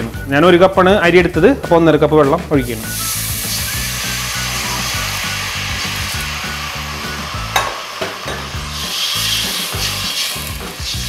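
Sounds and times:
background music with steady beat: 0:00.0 - 0:11.0
water hissing in hot oil: 0:02.6 - 0:11.0
ladle clinking against pot: 0:07.6 - 0:08.5
metal ladle stirring in pot: 0:07.6 - 0:11.0.

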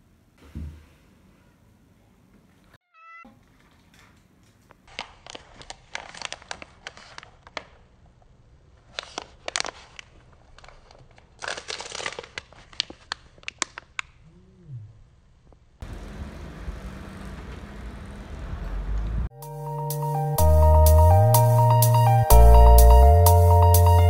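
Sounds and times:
snack wrapper crinkling: 0:04.7 - 0:08.0, 0:08.8 - 0:14.2.

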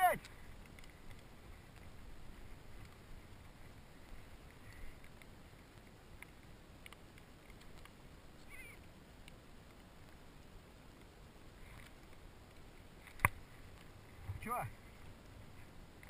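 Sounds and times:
light clicks: 0:04.0 - 0:08.0.

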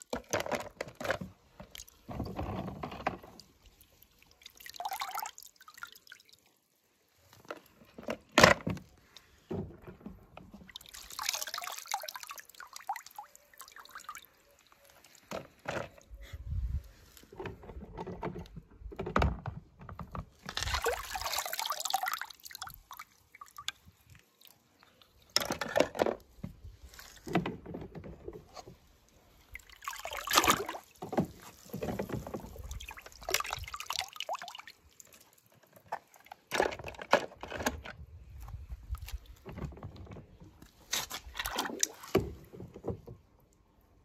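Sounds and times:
water splashing in plastic tub: 0:00.0 - 0:06.6, 0:07.4 - 0:16.0, 0:17.5 - 0:37.6, 0:38.9 - 0:43.5.

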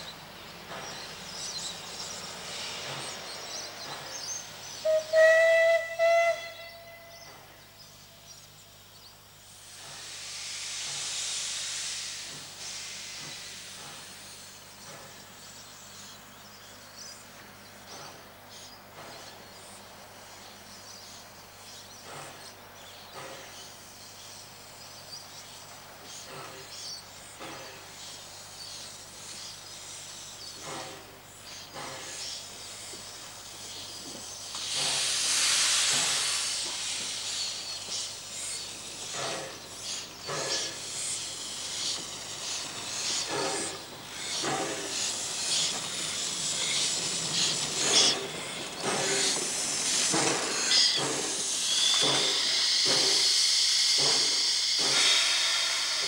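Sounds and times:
loud hiss of steam: 0:00.0 - 0:56.0
steam locomotive passing: 0:00.0 - 0:56.0
locomotive puffs and knocks: 0:09.7 - 0:15.3, 0:27.4 - 0:28.1, 0:30.5 - 0:56.0.

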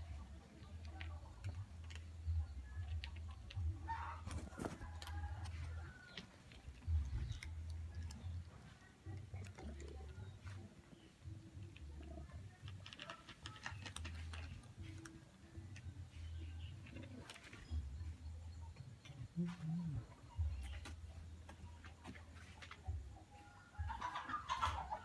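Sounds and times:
cats crunching dry kibble: 0:00.1 - 0:17.9.

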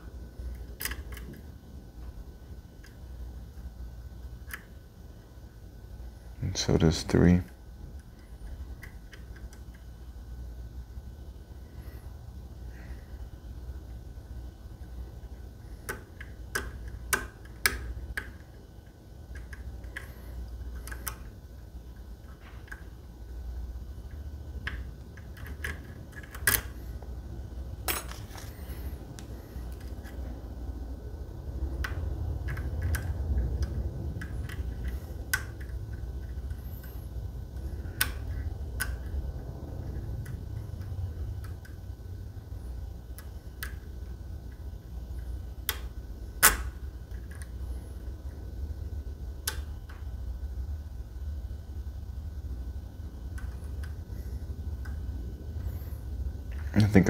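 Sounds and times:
lock pick metallic clicks: 0:24.6 - 0:26.8.

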